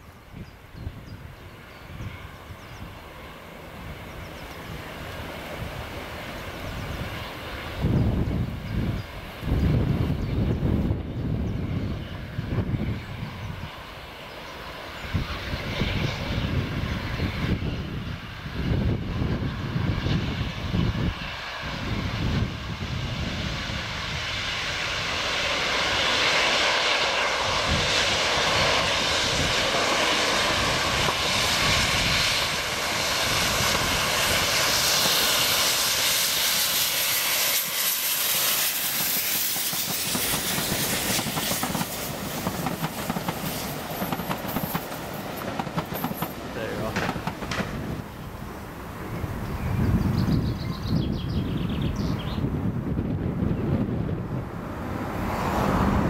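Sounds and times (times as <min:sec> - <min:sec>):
steam locomotive: 0:00.0 - 0:49.8
coaches rolling by: 0:39.5 - 0:49.0.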